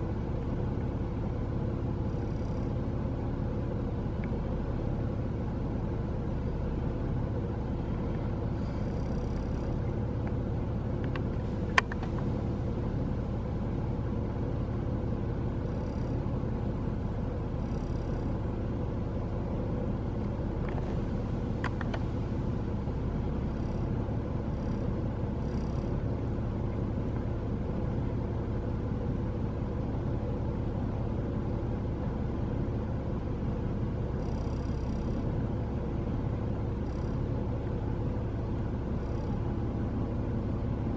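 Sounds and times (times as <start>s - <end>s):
low outdoor rumble: 0.0s - 40.9s
sharp click: 11.0s - 12.2s.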